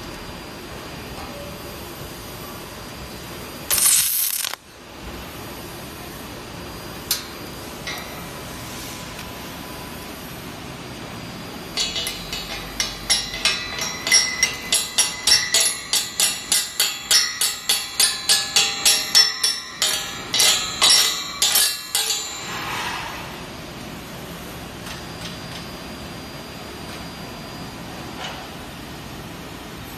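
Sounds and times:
hammer striking steel: 0:11.8 - 0:22.8.

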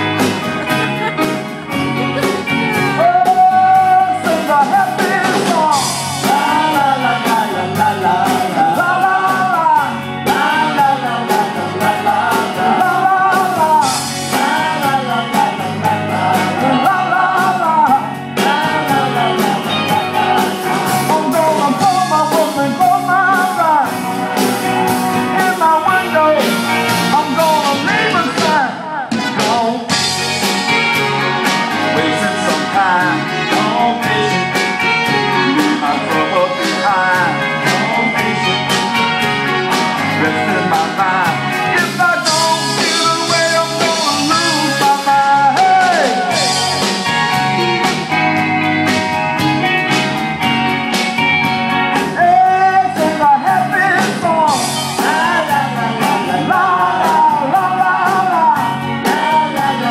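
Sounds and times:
instrumental backing with beat: 0:00.0 - 0:59.9
men singing blues: 0:01.9 - 0:47.2, 0:51.9 - 0:59.9.

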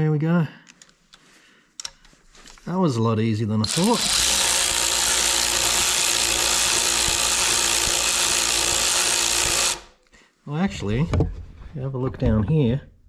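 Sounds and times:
cordless drill running: 0:03.6 - 0:10.0.

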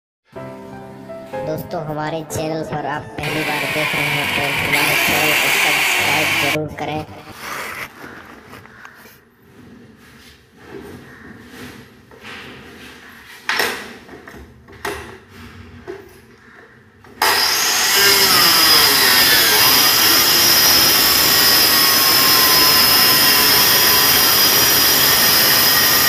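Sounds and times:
circular saw cutting plywood: 0:03.2 - 0:06.6, 0:17.2 - 0:26.0.

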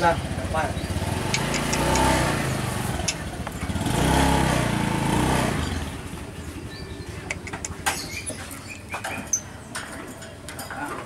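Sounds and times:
motorbike passing: 0:00.0 - 0:09.0.

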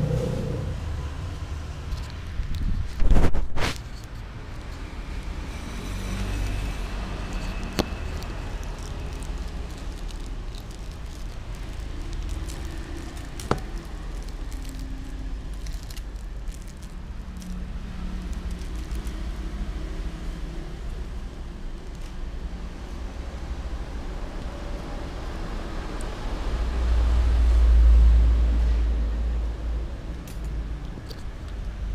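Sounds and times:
foil packet crinkling: 0:02.0 - 0:19.6
low background rumble: 0:06.4 - 0:30.0.

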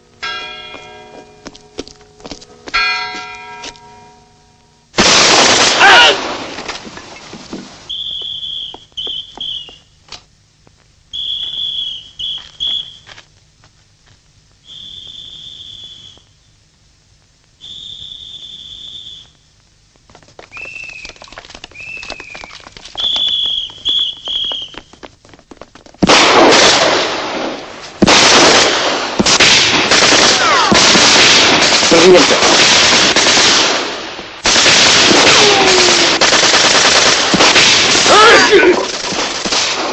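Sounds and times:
rapid heavy gunfire: 0:05.0 - 0:06.6, 0:26.0 - 0:39.9
high whistles: 0:07.9 - 0:10.0, 0:11.1 - 0:13.1, 0:14.6 - 0:16.5, 0:17.6 - 0:19.4, 0:20.5 - 0:25.0.

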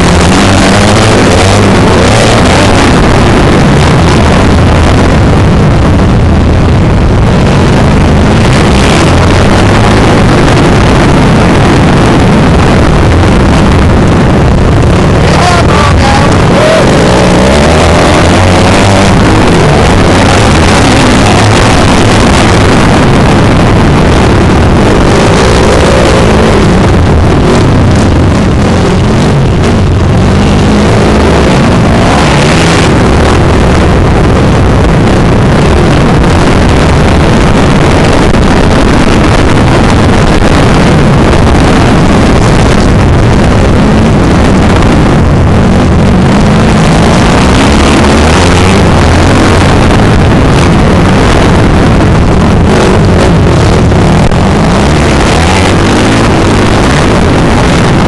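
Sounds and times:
dirt bike engine revving: 0:00.0 - 0:05.9, 0:07.0 - 0:34.5, 0:45.8 - 0:51.6, 0:52.4 - 0:58.0.

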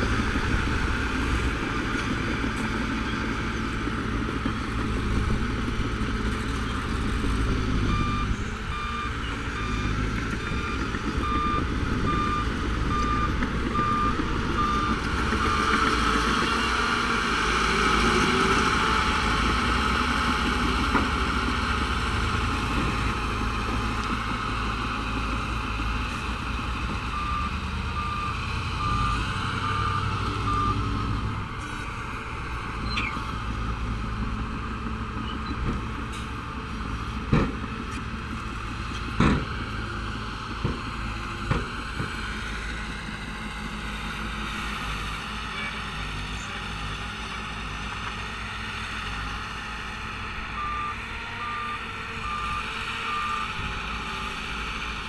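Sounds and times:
diesel engines of heavy machinery: 0:00.0 - 0:55.0
reversing alarm beeping: 0:07.9 - 0:15.8, 0:27.1 - 0:30.9.

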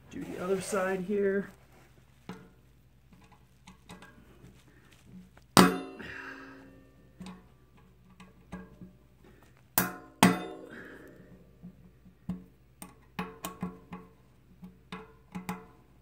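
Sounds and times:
ringing metallic clanks: 0:05.6 - 0:06.4.

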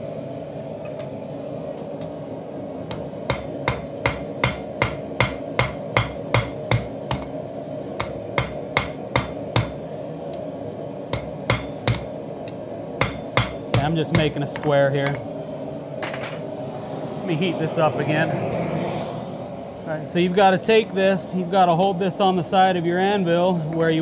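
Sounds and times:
low hum: 0:00.0 - 0:23.8
hammer striking steel on anvil: 0:02.9 - 0:07.4, 0:08.0 - 0:09.9, 0:11.1 - 0:12.1, 0:13.0 - 0:15.2.

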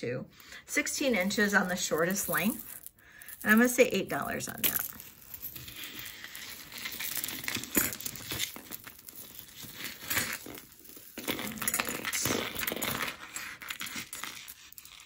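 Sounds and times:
packaging crinkling and rustling: 0:04.5 - 0:15.0.

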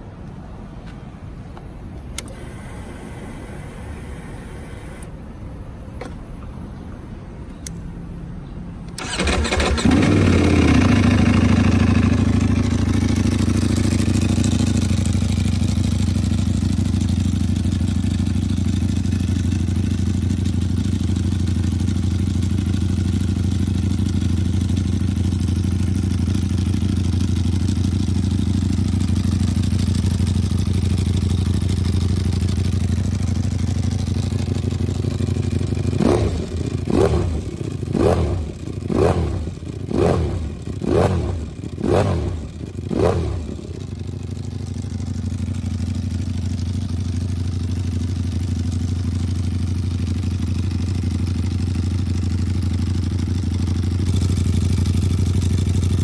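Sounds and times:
sharp throttle blips: 0:08.9 - 0:11.5
motorcycle engine idling: 0:09.0 - 0:56.0.

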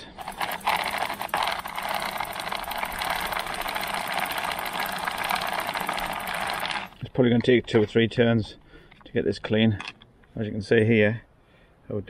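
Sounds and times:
bike chain cleaner rattling whir: 0:00.0 - 0:07.0.

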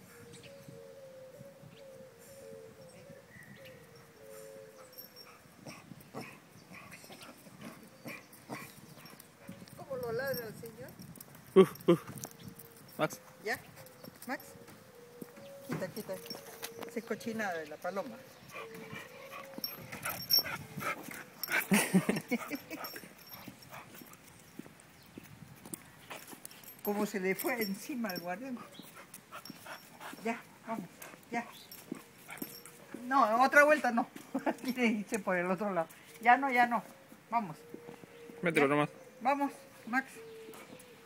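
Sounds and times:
light clicks and scuffs: 0:13.7 - 0:17.2, 0:22.6 - 0:33.1
footsteps on concrete: 0:22.9 - 0:27.5.

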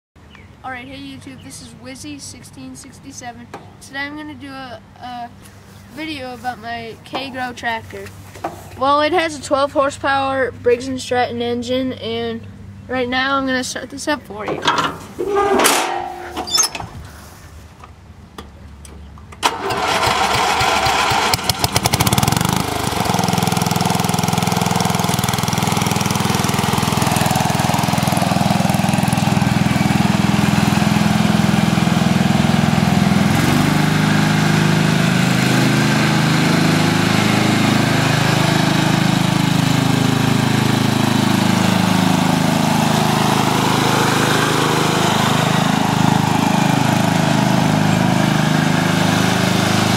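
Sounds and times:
lawn tractor engine running: 0:14.4 - 0:17.0, 0:18.8 - 0:49.9.

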